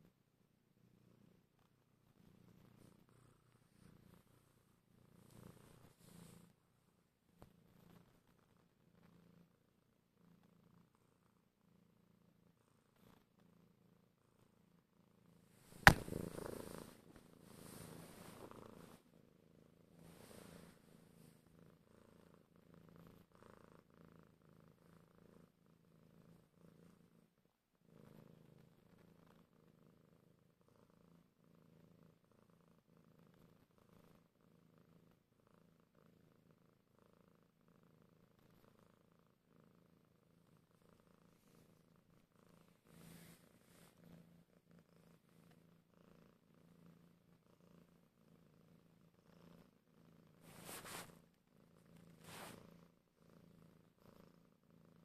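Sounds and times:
cat purring: 0.0s - 55.0s
rustling: 50.4s - 51.2s, 52.0s - 52.6s.

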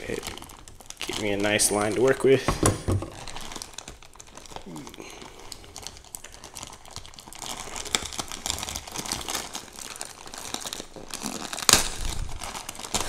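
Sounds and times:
packing tape peeling: 0.0s - 13.0s
plastic mailer bag crinkling: 0.0s - 13.0s.

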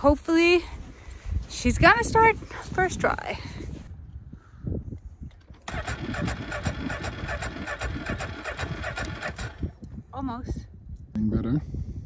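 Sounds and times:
snowmobile engine cranking: 5.4s - 9.7s.

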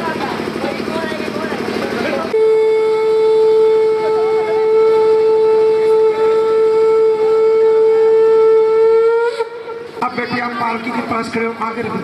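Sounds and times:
conch shell blown: 2.3s - 10.1s.

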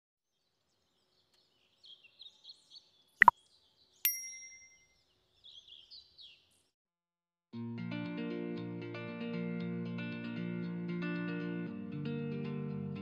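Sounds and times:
small birds chirping: 0.2s - 6.8s
bell-like ding: 4.1s - 4.9s.

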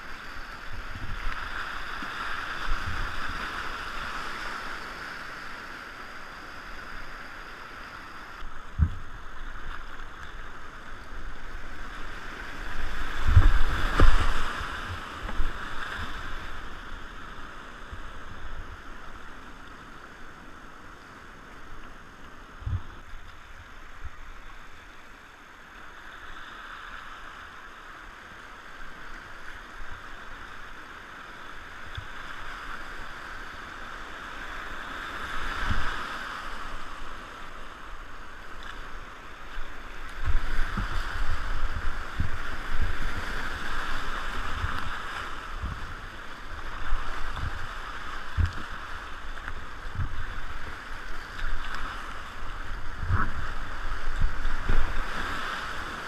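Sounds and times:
water slapping boat hull: 0.0s - 5.4s, 8.4s - 19.8s, 31.6s - 56.0s
whitewater rapids rushing: 29.5s - 56.0s.

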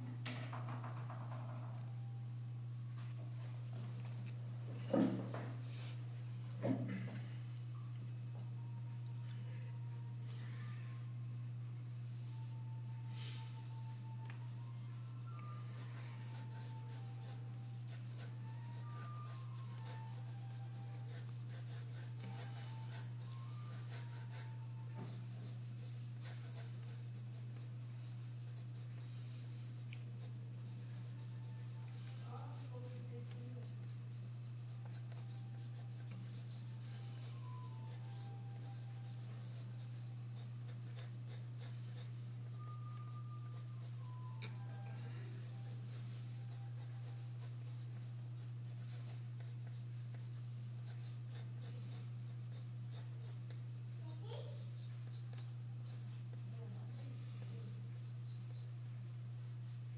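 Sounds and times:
steady low hum: 0.0s - 59.9s
pencil scratching on paper: 15.5s - 59.9s.

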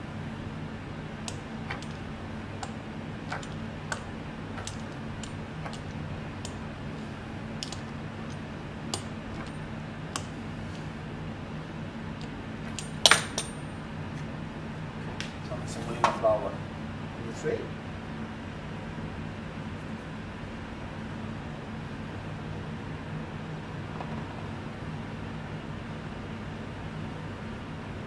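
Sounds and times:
steady low hum: 0.0s - 28.0s
pastry wheel clicks and taps: 2.6s - 6.6s.

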